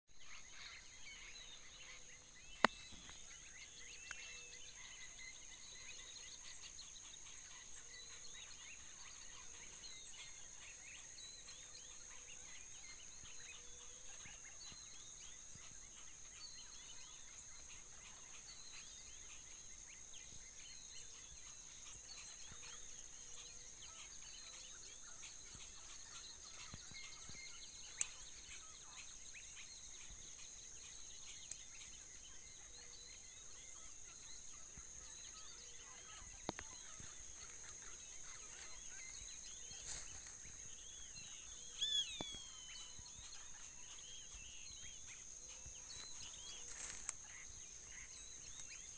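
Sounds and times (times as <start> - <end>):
short chirping calls: 34.6 - 48.9.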